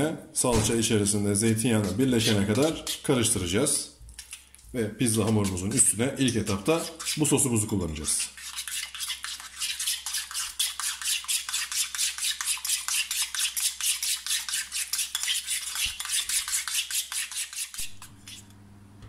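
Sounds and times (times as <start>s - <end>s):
metal spoon stirring sauce in bowl: 1.8s - 18.5s
spoon scraping and clicking on bowl: 4.1s - 7.2s.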